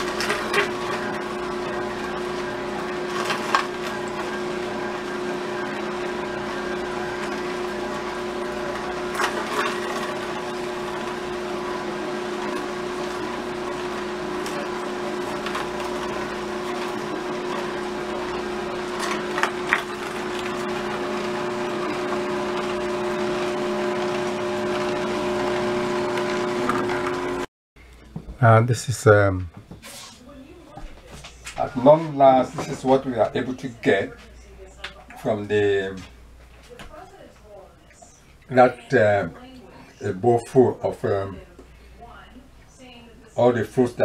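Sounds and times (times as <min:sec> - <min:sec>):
juicer motor humming: 0:00.0 - 0:27.5, 0:31.6 - 0:34.2, 0:35.0 - 0:36.4, 0:38.3 - 0:41.8.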